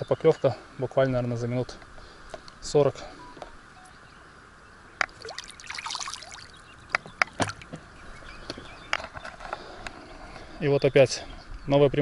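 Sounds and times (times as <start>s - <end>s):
water splashing and trickling: 5.0s - 7.8s.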